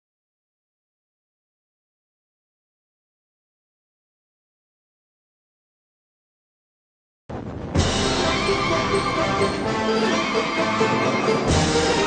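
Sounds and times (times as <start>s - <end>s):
music: 7.4s - 12.0s.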